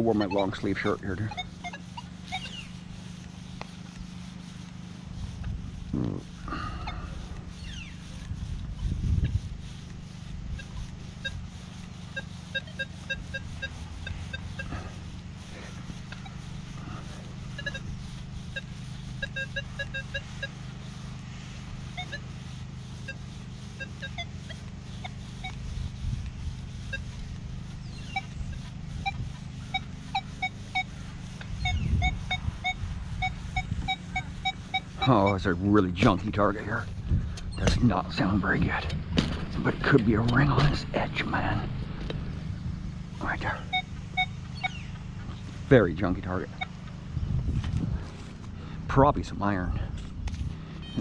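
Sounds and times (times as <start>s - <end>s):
metal detector beeps: 0.0s - 2.8s, 10.5s - 14.9s, 16.0s - 20.6s, 21.9s - 22.3s, 23.0s - 25.6s, 26.8s - 27.2s, 27.9s - 30.9s, 31.5s - 35.5s, 43.6s - 44.9s
steady low hum: 0.0s - 51.0s.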